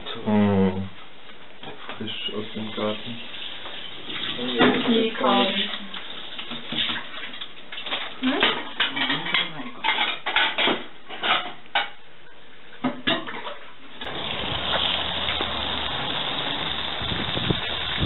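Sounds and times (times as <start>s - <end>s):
steady hiss: 2.0s - 4.2s, 14.1s - 18.0s.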